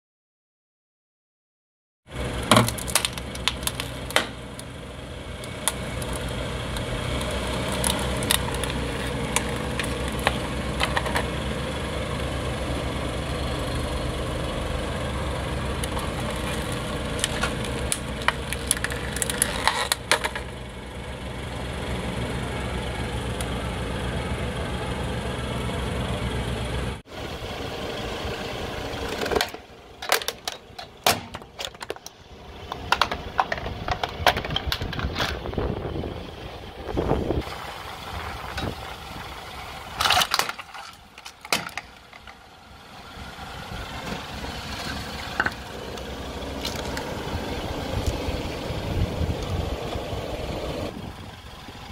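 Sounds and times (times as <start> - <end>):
car engine idling: 2.1 - 51.9
plastic bottle cracking under tyre: 2.4 - 4.7, 5.4 - 11.3, 15.8 - 20.5, 29.2 - 32.1, 40.0 - 42.4.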